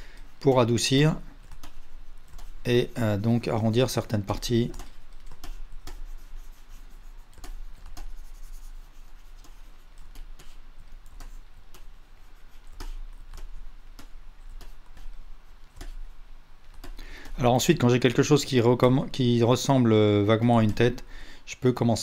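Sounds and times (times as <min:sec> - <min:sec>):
steady low hum: 0:00.0 - 0:22.0
sharp computer clicks: 0:12.7 - 0:15.1.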